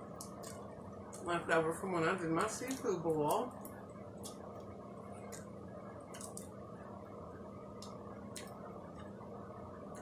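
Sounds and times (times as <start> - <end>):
shrimp being peeled: 0.0 - 1.3, 6.1 - 6.6
steady low hum: 0.0 - 10.0.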